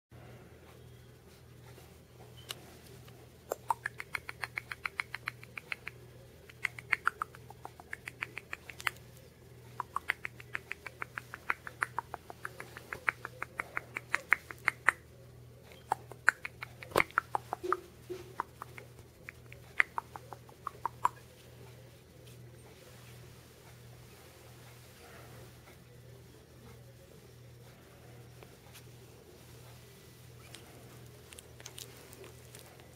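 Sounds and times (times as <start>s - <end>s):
kissing squeaks with lips: 3.5s - 5.8s, 15.7s - 21.2s.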